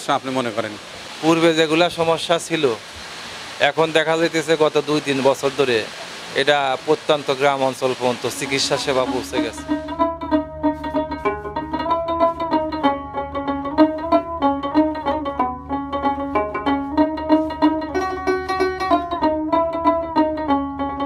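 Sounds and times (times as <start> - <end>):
instrumental string music: 7.3 - 21.0.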